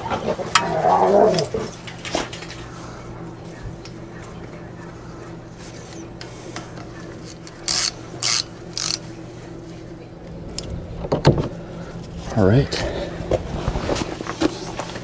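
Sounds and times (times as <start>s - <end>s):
steady low hum: 0.0s - 15.0s
ratchet wrench clicking: 7.3s - 9.0s.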